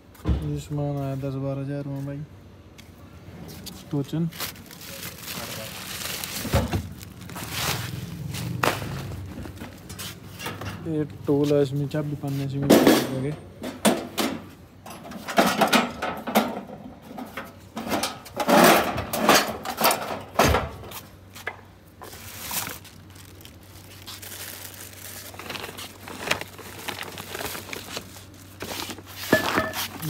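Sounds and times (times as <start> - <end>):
packets rustling and crinkling: 3.6 - 10.4, 21.0 - 30.0.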